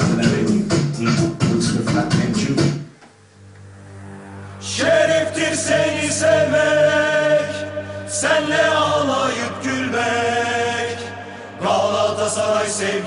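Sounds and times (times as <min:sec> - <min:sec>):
low drone: 0:03.3 - 0:13.0
choir singing long notes: 0:03.8 - 0:13.0.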